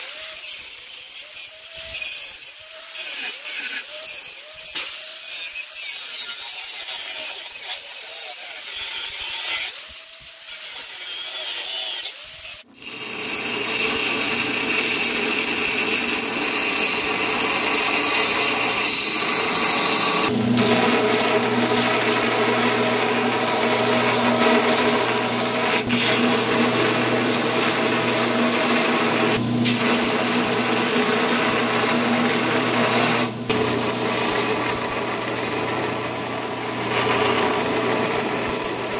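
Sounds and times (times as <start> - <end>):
angle grinder cutting metal: 0.0 - 38.9
belt grinder grinding: 0.0 - 38.9.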